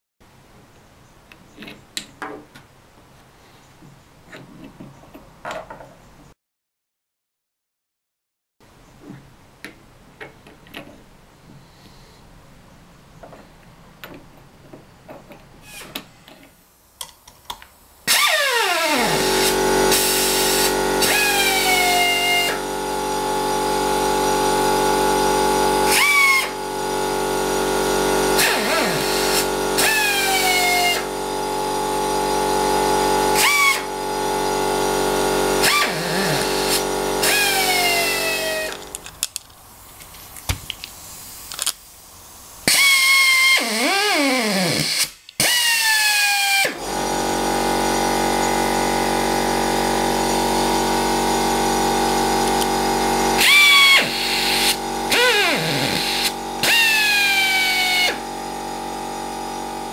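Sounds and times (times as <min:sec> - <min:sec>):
air rivnut tool whining: 0:18.1 - 0:39.4, 0:42.6 - 0:48.6, 0:50.2 - 0:59.8.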